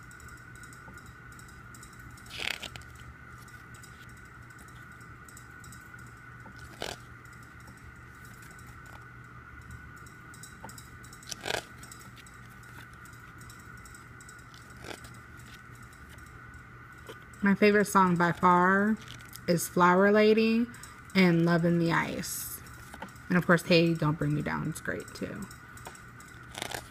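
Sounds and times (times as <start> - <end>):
faint hum: 0.0 - 26.9
paper pages flipping: 6.6 - 7.1, 11.3 - 13.0, 26.5 - 26.9.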